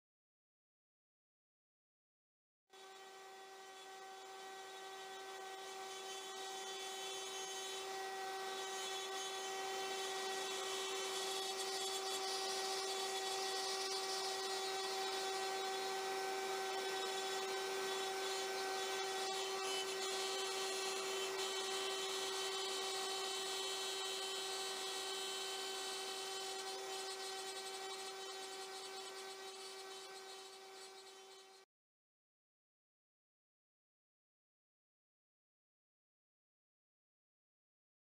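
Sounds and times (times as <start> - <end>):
hiss of cutting and dust extraction: 2.8 - 31.4
router motor whining: 2.8 - 31.6.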